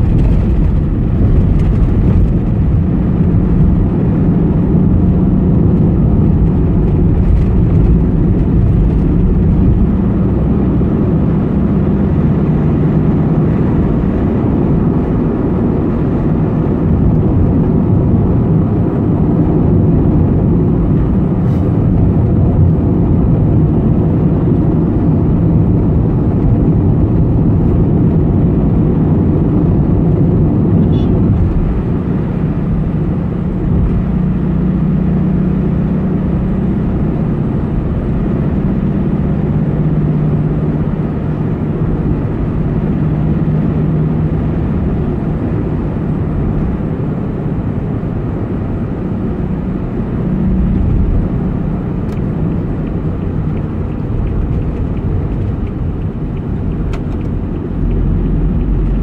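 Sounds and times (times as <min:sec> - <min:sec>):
car road and engine noise: 0:00.0 - 0:59.0
steady low drone: 0:40.4 - 0:59.0.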